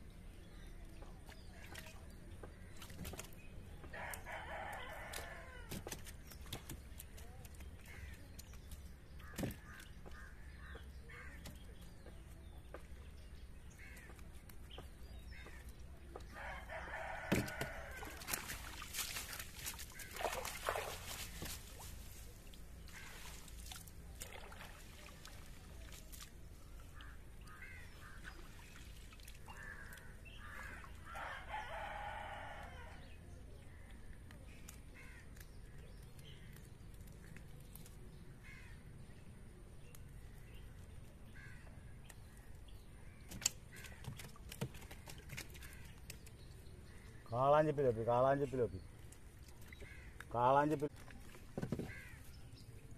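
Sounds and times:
water splashing and dripping: 0:00.9 - 0:03.5, 0:17.2 - 0:31.1, 0:43.2 - 0:46.7
rooster crowing: 0:16.4 - 0:18.2, 0:31.1 - 0:33.0.

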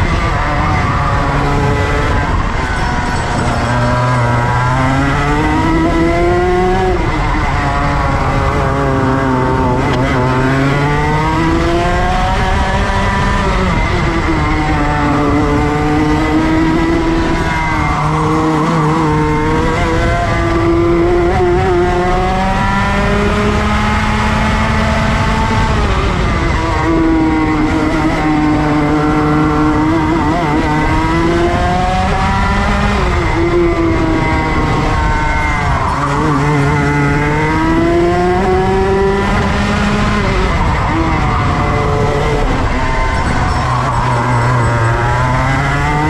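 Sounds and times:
go-kart engine racing: 0:00.0 - 0:46.0.

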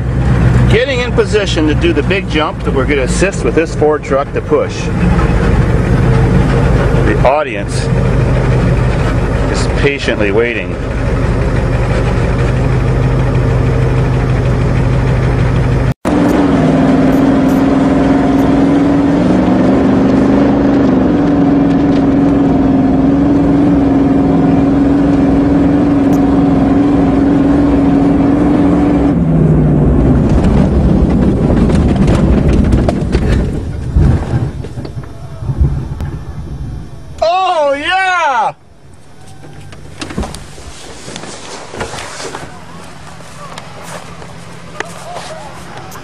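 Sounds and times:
engine droning under load: 0:00.0 - 0:46.0
rattles and heavy knocks: 0:30.1 - 0:36.2.

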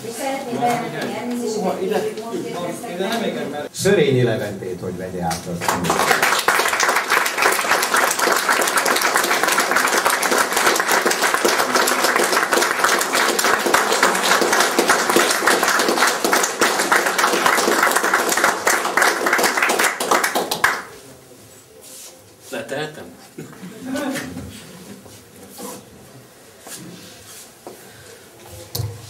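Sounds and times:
audience applause: 0:05.6 - 0:20.9.

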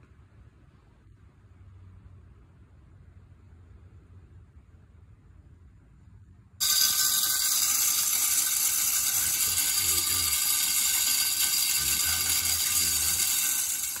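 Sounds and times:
feeder spinner whirring: 0:06.6 - 0:14.0.

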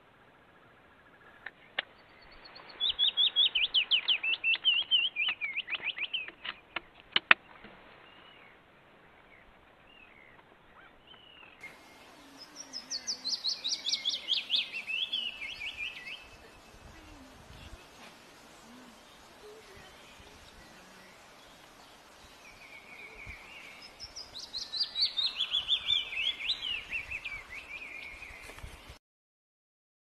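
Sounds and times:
warbler singing: 0:01.7 - 0:29.0.

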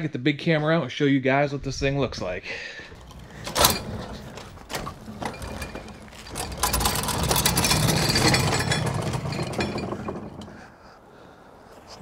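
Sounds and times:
trailer frame rattling: 0:03.0 - 0:10.8
trailer tyres rumbling over ground: 0:03.0 - 0:10.8.

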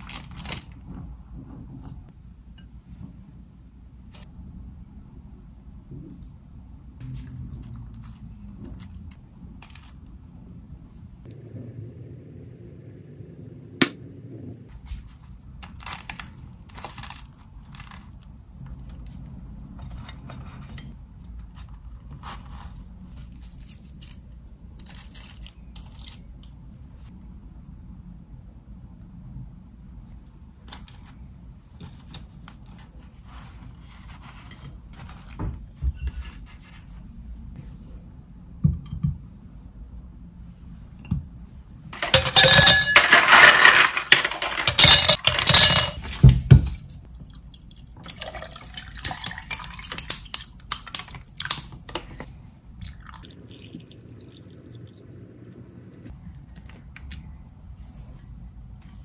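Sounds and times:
ice cubes clattering into glass: 0:42.0 - 0:46.0
ice crackling and clinking: 0:42.0 - 0:46.1, 0:48.1 - 0:51.6
drink pouring over ice: 0:48.1 - 0:50.0, 0:52.8 - 0:55.0.

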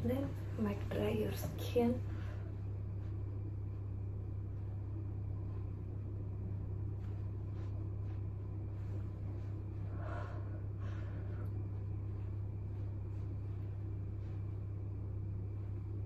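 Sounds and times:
exhaust fan humming: 0:00.0 - 0:16.0
towel rustling: 0:06.6 - 0:09.9, 0:11.6 - 0:16.0.

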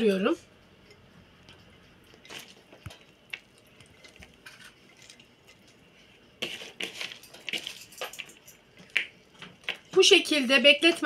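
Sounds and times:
wet cabbage rustling and squishing: 0:02.1 - 0:05.6.

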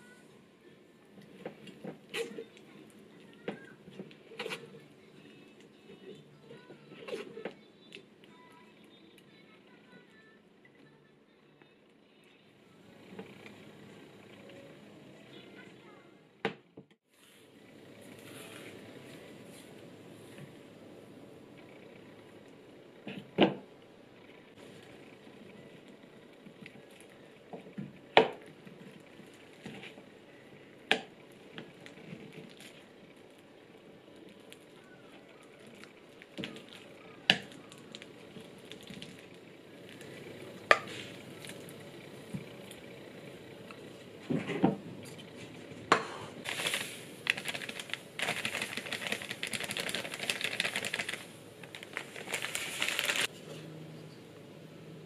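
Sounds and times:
soft squishing of mashed banana: 0:25.8 - 0:42.9.

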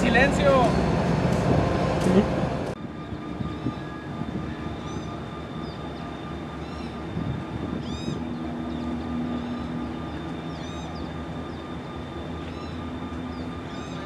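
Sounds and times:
diesel locomotives idling: 0:00.0 - 0:02.8, 0:04.0 - 0:14.0
thin high whine: 0:02.0 - 0:14.0
birds chirping: 0:02.8 - 0:14.0.

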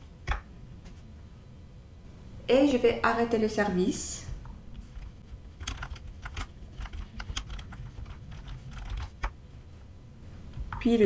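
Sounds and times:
computer keyboard typing: 0:04.9 - 0:09.4.

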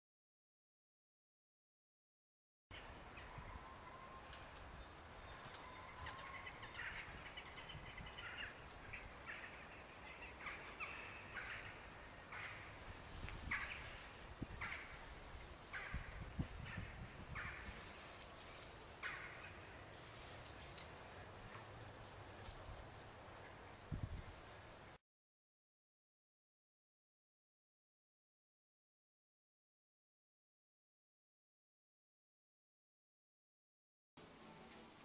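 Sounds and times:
faint steady background noise: 0:02.7 - 0:25.0, 0:34.2 - 0:35.0.

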